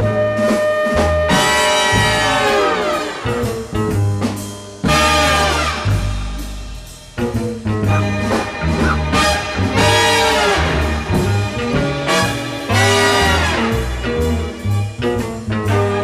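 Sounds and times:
swing jazz with brass and drums: 0.0s - 16.0s.

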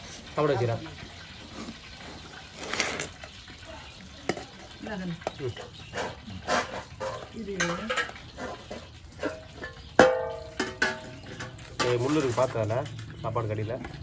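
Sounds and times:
spoon scraping in pot of rice: 4.3s - 9.9s.

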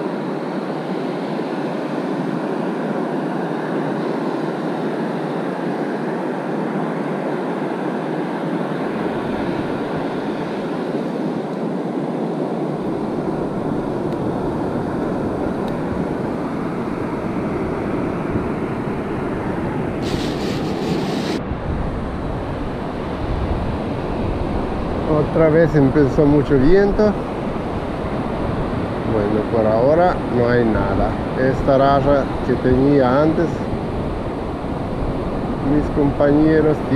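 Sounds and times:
wind buffeting microphone: 12.8s - 36.9s
surf breaking on beach: 19.5s - 21.7s.

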